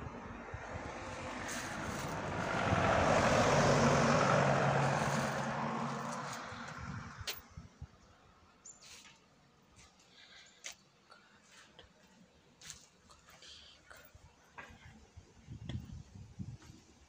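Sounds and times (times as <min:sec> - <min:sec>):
vehicle driving past: 0:00.0 - 0:07.4.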